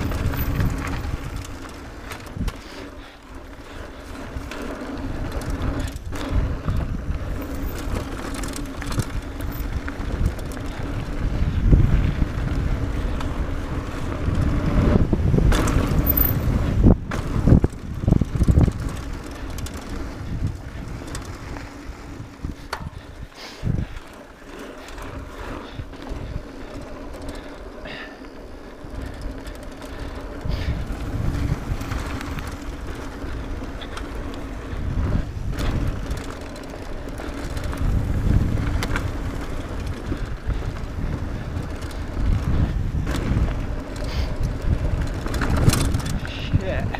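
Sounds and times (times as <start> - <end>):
bike rattling and knocking: 0.0 - 46.9
bike tyres rumbling on dirt: 0.0 - 46.9.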